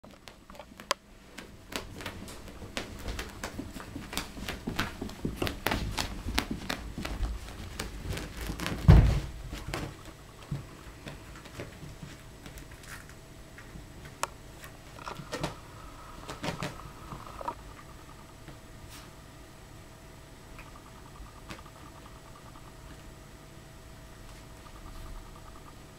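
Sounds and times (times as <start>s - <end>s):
puppy playing with toys on carpet: 0.1s - 15.6s
loud dull thump: 8.8s - 9.4s.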